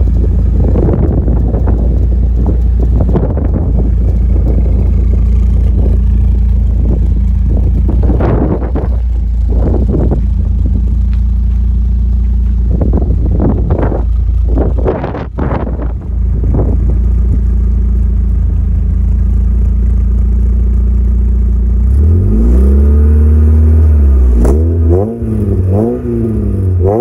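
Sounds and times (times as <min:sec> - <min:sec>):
car engine idling: 0:00.0 - 0:27.0.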